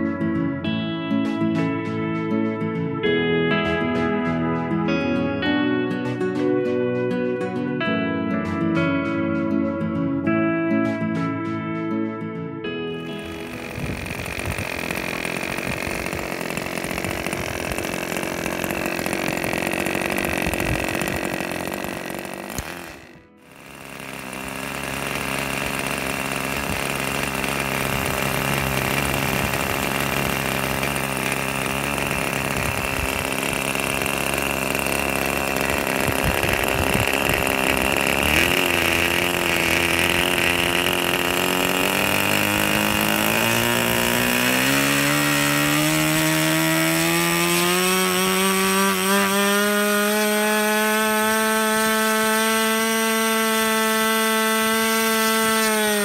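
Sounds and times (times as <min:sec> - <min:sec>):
model engine buzzing: 0:13.0 - 0:56.0.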